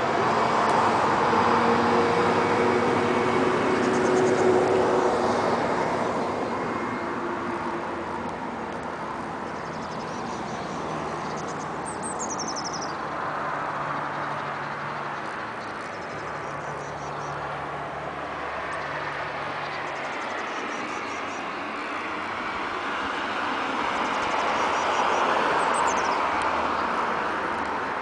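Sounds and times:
engine hum: 0:00.0 - 0:28.0
bird chirp: 0:09.4 - 0:13.1, 0:13.9 - 0:17.4, 0:19.6 - 0:21.9, 0:23.9 - 0:27.0.

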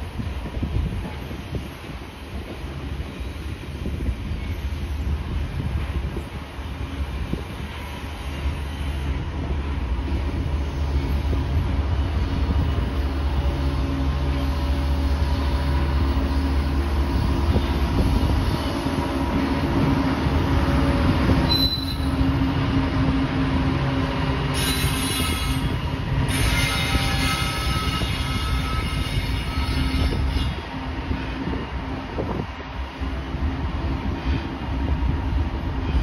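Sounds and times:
diesel locomotive engine drone: 0:00.0 - 0:36.0
train wheels rumbling on rails: 0:00.0 - 0:36.0
high wheel squeal: 0:21.4 - 0:22.2, 0:24.5 - 0:30.6.

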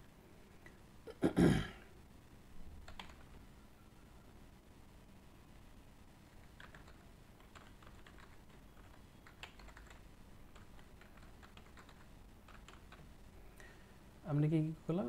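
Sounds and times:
typing on computer keyboard: 0:02.8 - 0:03.4, 0:06.4 - 0:13.1.

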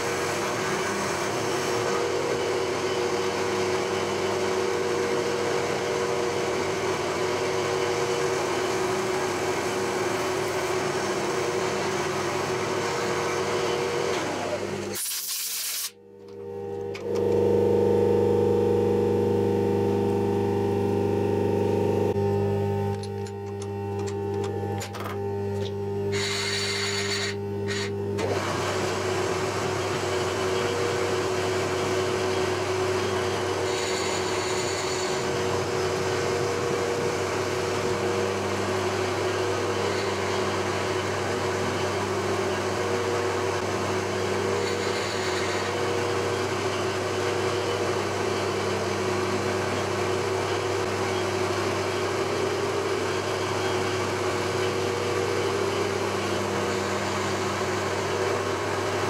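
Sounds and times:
milling machine motor hum: 0:00.0 - 0:15.0, 0:15.9 - 0:59.0
metal cutting hiss: 0:14.9 - 0:15.9.

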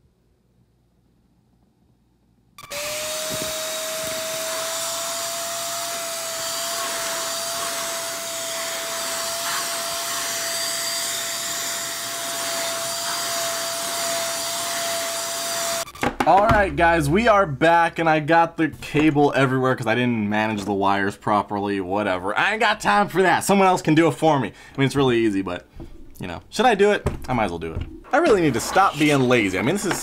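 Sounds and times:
vacuum cleaner running: 0:02.6 - 0:15.9.

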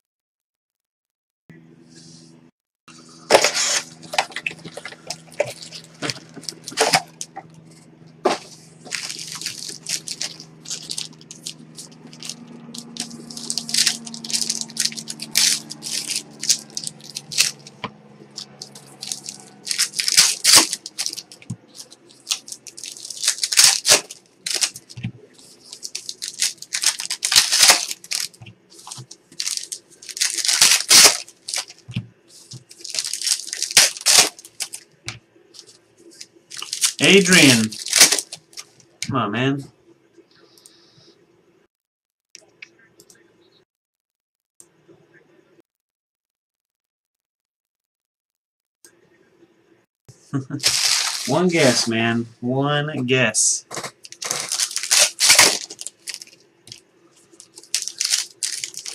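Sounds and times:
foil wrappers crinkling: 0:03.3 - 0:07.5, 0:08.3 - 0:34.8, 0:35.6 - 0:38.9, 0:50.4 - 0:51.9, 0:53.7 - 0:58.9.

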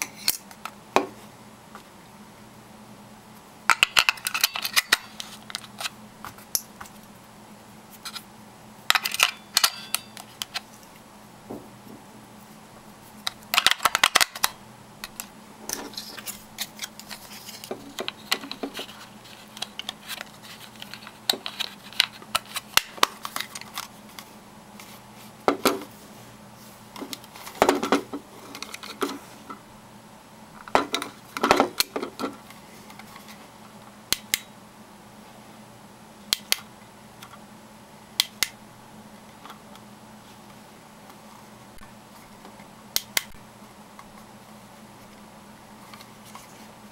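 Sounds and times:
plastic parts clicking and rattling: 0:08.9 - 0:10.8, 0:13.2 - 0:24.2, 0:27.0 - 0:29.2.

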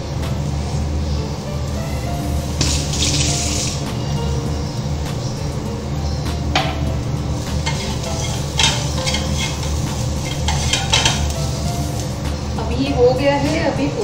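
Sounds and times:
ghee sizzling in a frying pan: 0:00.0 - 0:14.0
spatula scraping a pan: 0:07.4 - 0:12.0.

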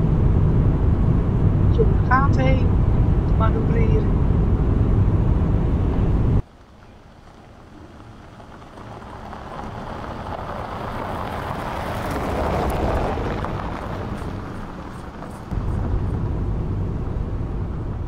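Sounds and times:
low rumble: 0:00.0 - 0:06.4, 0:07.2 - 0:18.0
car driving past on gravel: 0:06.4 - 0:18.0.

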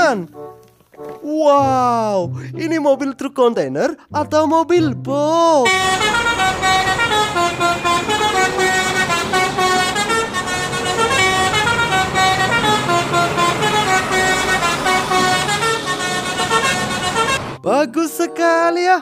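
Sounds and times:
horn-like melody: 0:05.6 - 0:17.6.

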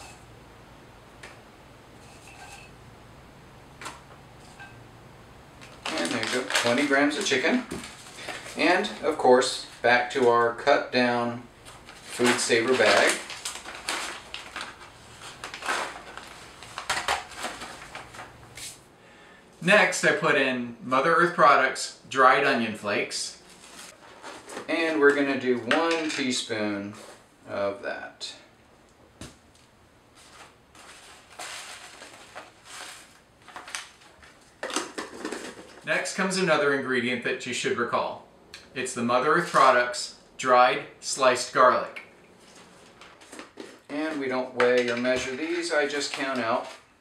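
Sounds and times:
plastic bag crinkling: 0:05.6 - 0:10.6, 0:11.6 - 0:18.6, 0:30.2 - 0:35.9, 0:42.4 - 0:47.0
dried food pieces poured: 0:05.7 - 0:08.9.

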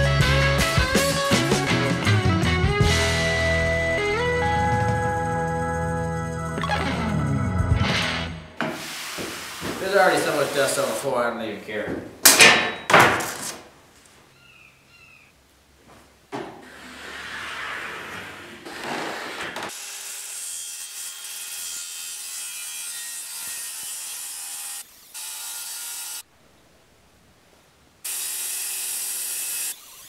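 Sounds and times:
circular saw cutting board: 0:08.0 - 0:11.1
brush sweeping dust: 0:08.6 - 0:11.2.

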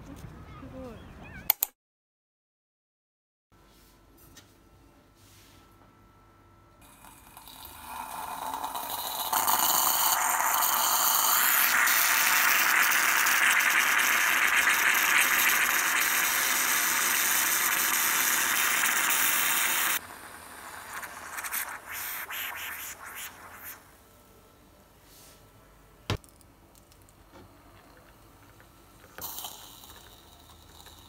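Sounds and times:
moka pot hissing and sputtering: 0:06.8 - 0:24.0, 0:27.8 - 0:31.0.

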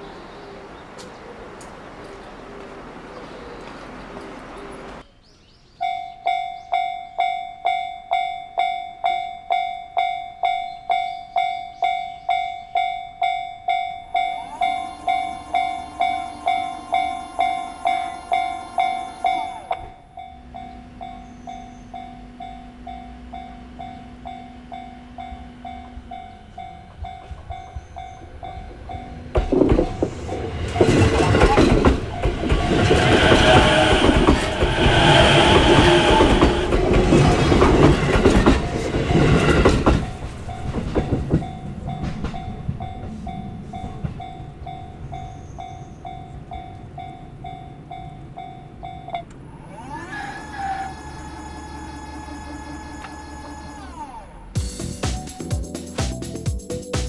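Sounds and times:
level crossing bell ringing: 0:05.8 - 0:31.3, 0:40.0 - 0:49.3
train wheels clattering: 0:15.1 - 0:49.1.

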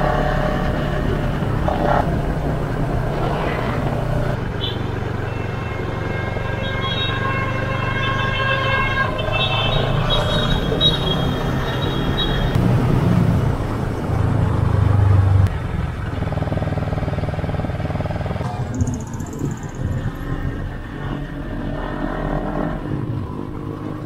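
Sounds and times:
road noise: 0:00.0 - 0:24.0
motorcycle engine running: 0:15.2 - 0:21.2.

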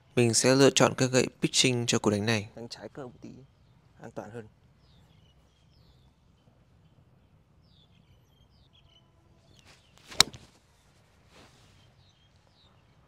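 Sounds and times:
birds chirping: 0:00.0 - 0:13.0
golf club swish: 0:09.5 - 0:11.8
golf club striking ball: 0:10.1 - 0:10.4.

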